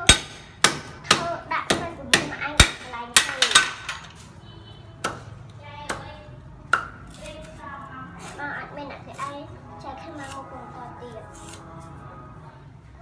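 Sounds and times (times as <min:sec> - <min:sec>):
sharp hammering knocks: 0:00.0 - 0:03.9, 0:05.0 - 0:05.3.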